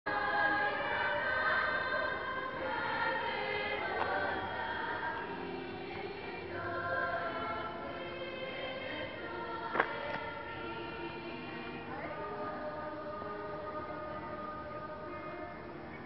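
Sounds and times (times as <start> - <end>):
children's choir singing: 0.1 - 16.0.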